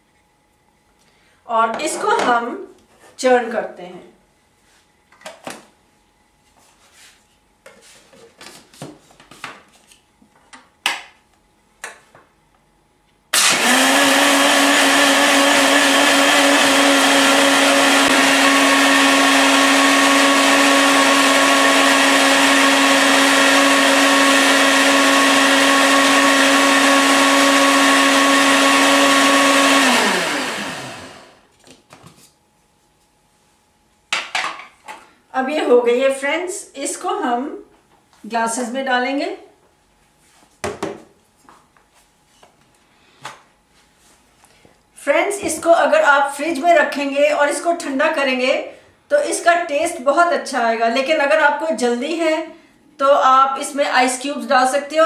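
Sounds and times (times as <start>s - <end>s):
mixer grinder motor whining: 13.3s - 31.5s.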